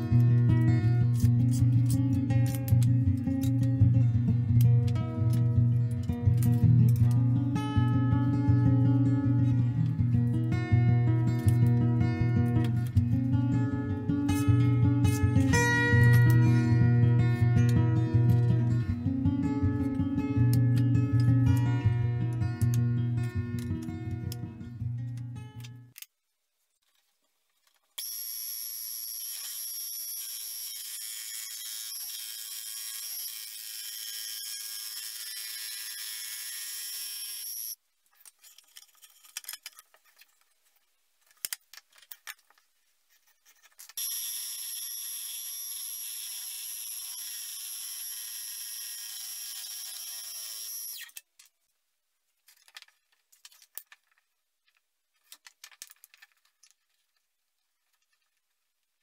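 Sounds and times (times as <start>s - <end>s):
scroll saw whining: 28.0s - 37.8s, 44.0s - 51.2s
faint scrapes and knocks: 38.1s - 44.0s.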